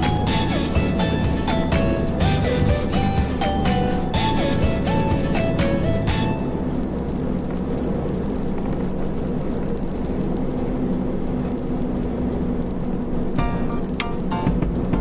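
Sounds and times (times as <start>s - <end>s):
music: 0.0s - 6.7s, 13.4s - 15.0s
car engine and tyre hum: 0.0s - 15.0s.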